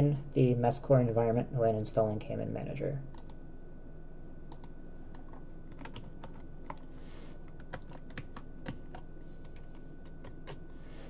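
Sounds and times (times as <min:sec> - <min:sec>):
computer keyboard typing: 0:04.5 - 0:06.8, 0:07.5 - 0:10.6.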